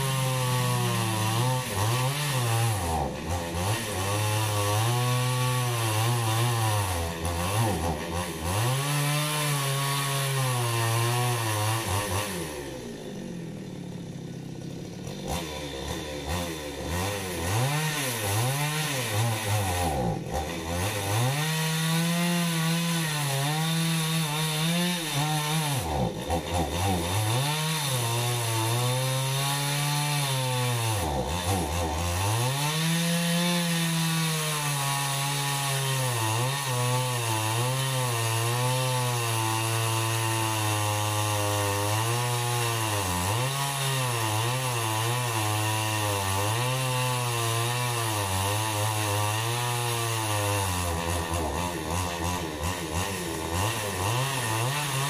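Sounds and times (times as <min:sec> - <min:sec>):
chainsaw cutting wood: 0:00.0 - 0:55.0.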